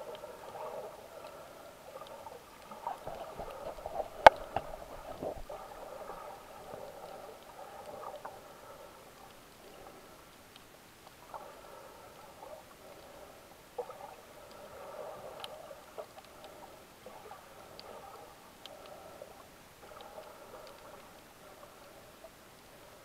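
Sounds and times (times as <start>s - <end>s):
muffled underwater water sounds: 0.0s - 23.0s
small clicks and knocks: 3.0s - 5.4s.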